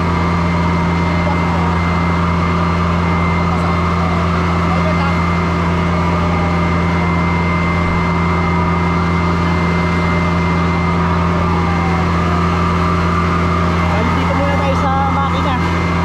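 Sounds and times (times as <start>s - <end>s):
high whine: 0.0s - 16.0s
truck engine humming: 0.0s - 16.0s.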